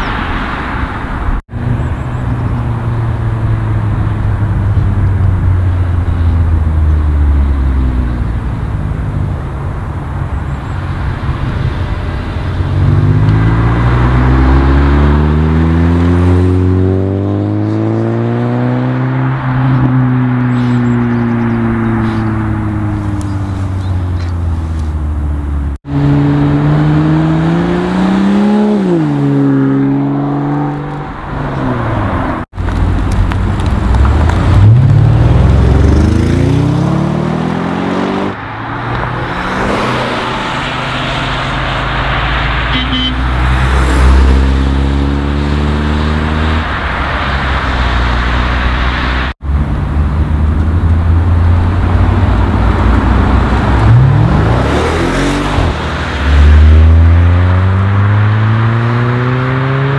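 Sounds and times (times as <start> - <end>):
cars accelerating: 0.0 - 59.9.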